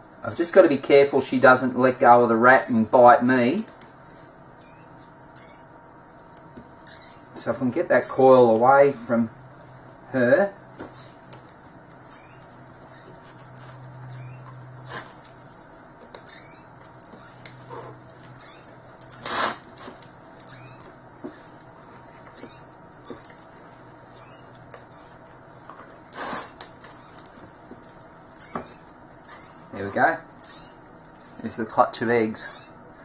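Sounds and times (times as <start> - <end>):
low steady hum: 0.0 - 33.0
high wavering chirp: 4.6 - 5.7, 6.8 - 7.2, 12.1 - 13.2, 14.0 - 14.6, 16.2 - 17.4, 18.4 - 19.3, 20.4 - 20.9, 22.4 - 23.2, 24.1 - 25.2, 28.4 - 29.6, 30.4 - 31.4.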